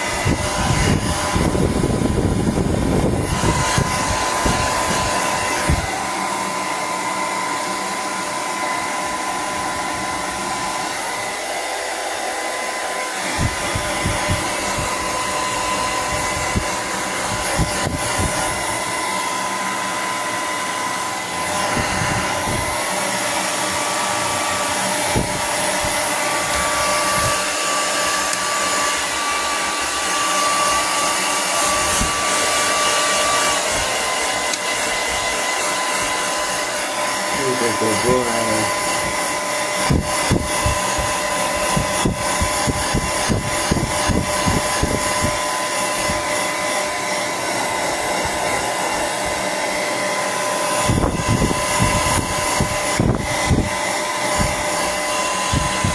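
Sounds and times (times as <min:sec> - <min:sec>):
hair dryer blowing: 0:00.0 - 0:55.9.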